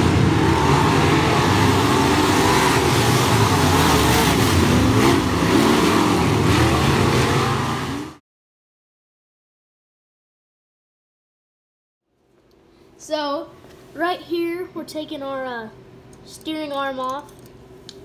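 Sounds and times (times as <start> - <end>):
race car engines passing: 0.0 - 8.2.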